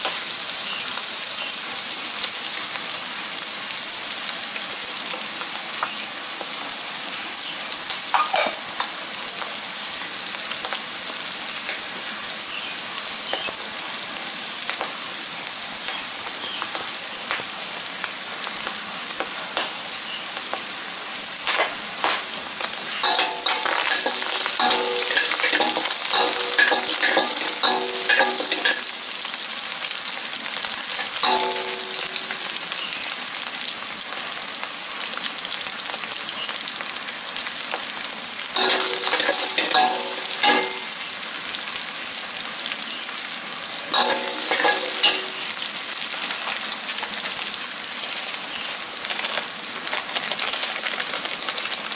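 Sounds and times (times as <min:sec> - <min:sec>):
food sizzling in oil: 0:00.0 - 0:51.9
spatula scraping wok: 0:23.0 - 0:28.9, 0:38.6 - 0:40.8, 0:43.9 - 0:45.5.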